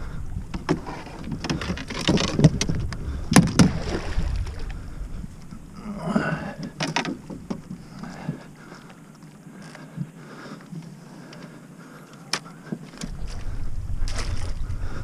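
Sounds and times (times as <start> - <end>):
gear knocking in boat: 0.5 - 4.5
low rumble: 13.0 - 15.0.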